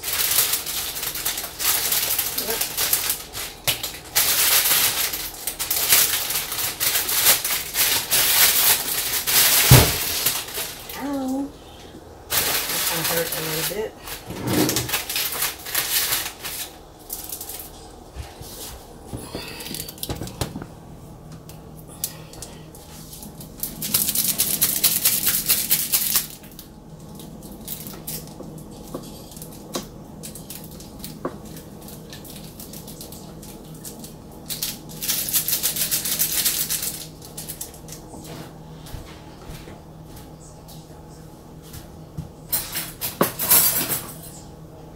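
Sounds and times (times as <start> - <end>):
wrapping crinkling: 0.0 - 11.5, 12.3 - 20.1, 22.0 - 38.1
steady low hum: 0.0 - 44.9.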